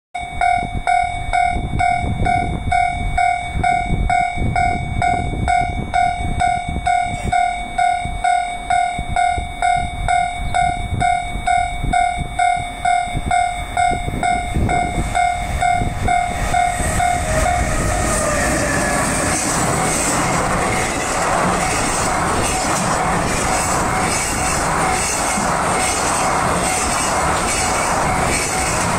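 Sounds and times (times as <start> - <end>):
level crossing warning bell: 0.2 - 28.9
train rushing past: 1.8 - 28.9.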